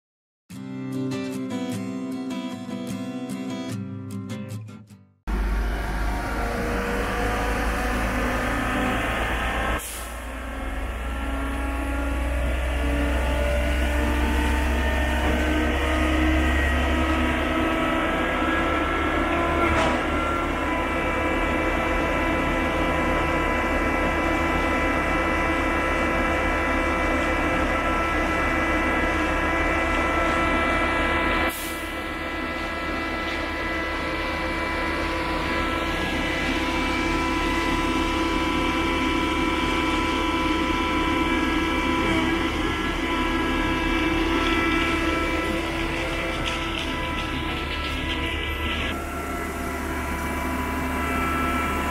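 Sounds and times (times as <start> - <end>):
motor humming: 33.4 - 51.9.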